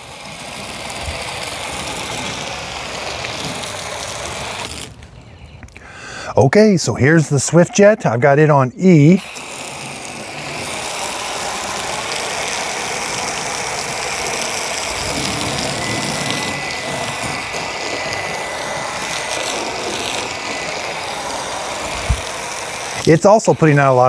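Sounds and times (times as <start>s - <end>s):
foam gun spraying water on car: 0.0s - 5.0s, 6.6s - 24.0s.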